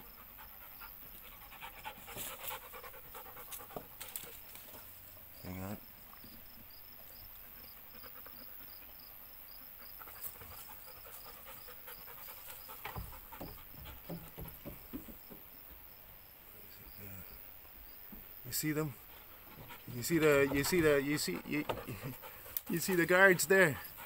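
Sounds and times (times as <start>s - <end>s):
dog panting: 0.0s - 5.2s, 7.0s - 15.3s, 18.7s - 24.0s.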